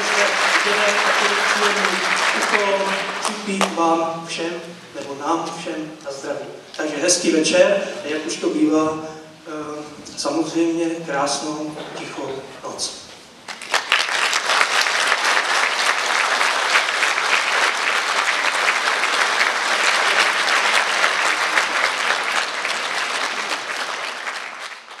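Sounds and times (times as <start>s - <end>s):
audience applauding: 0.0s - 4.0s, 13.5s - 25.0s.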